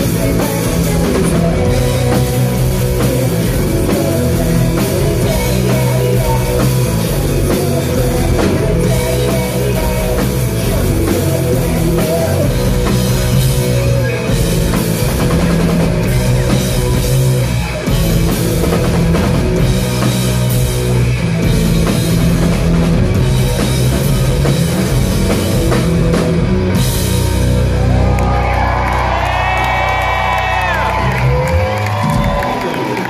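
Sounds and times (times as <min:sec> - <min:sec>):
distorted electric guitars: 0:00.0 - 0:33.0
live rock band playing: 0:00.0 - 0:33.0.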